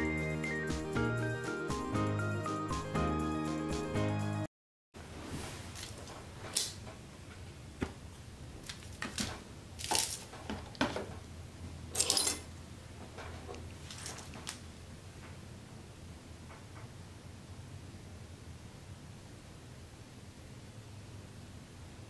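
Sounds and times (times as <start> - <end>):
aluminium foil crinkling: 8.6 - 10.8, 13.8 - 14.6.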